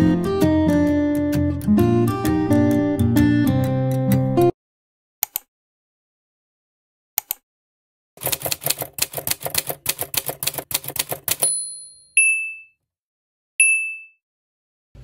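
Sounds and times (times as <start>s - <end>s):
typewriter key clacks: 8.2s - 11.5s
typewriter bell dings: 10.4s - 12.8s, 13.6s - 14.2s.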